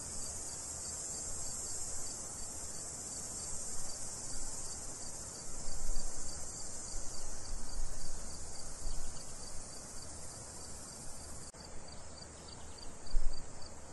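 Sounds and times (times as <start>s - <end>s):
crickets chirping: 0.0s - 13.9s.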